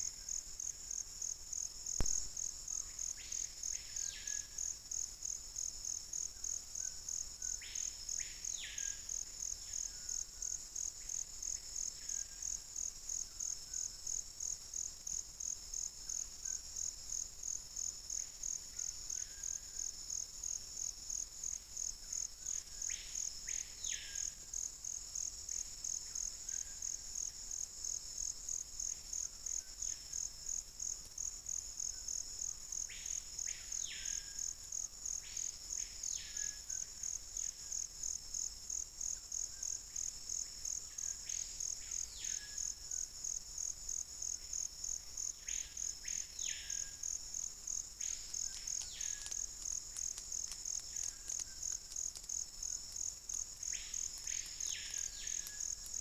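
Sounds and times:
insect trilling: 45.2 - 56.0.

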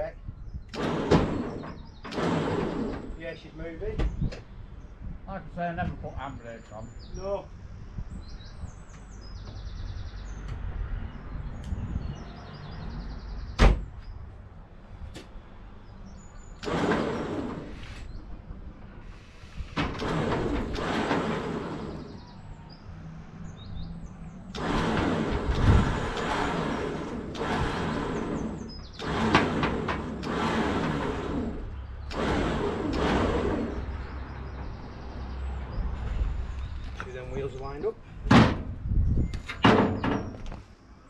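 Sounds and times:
winch pulling: 16.5 - 18.1, 19.4 - 22.4, 24.4 - 35.0.

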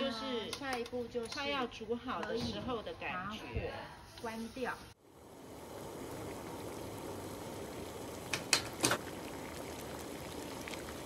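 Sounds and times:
saucepan bubbling: 4.9 - 11.0.

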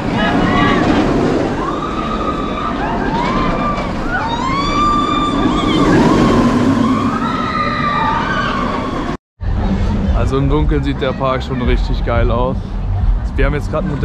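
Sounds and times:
roller coaster train roaring on track: 0.0 - 14.0
riders screaming: 1.5 - 9.2.

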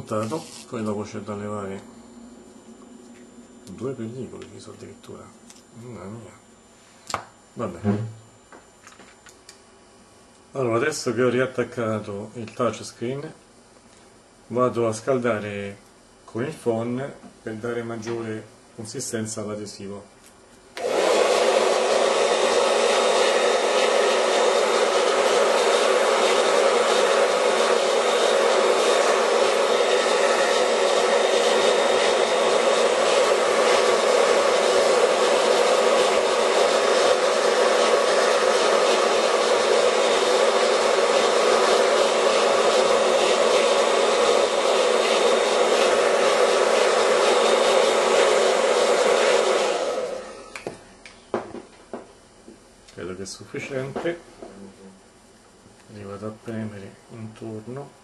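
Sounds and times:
hair dryer blowing: 20.8 - 50.8.

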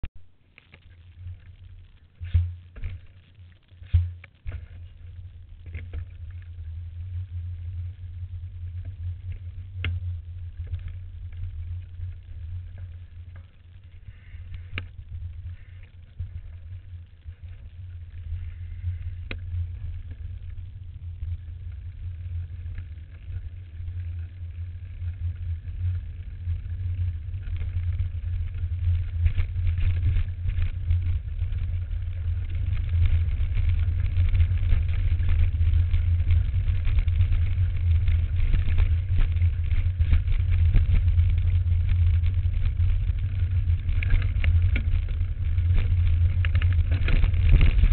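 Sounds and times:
bike tyres rolling on dirt: 0.1 - 47.9
wind rumble: 0.1 - 47.9
bike knocks and rattles: 0.5 - 6.6, 26.6 - 47.9.

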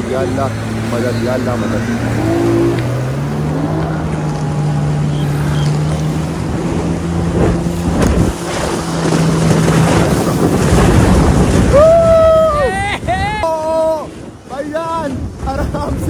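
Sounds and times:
boat engine droning: 0.0 - 15.4
rushing water: 0.0 - 16.0
wind buffeting microphone: 0.0 - 16.0
person shouting: 11.7 - 14.1.

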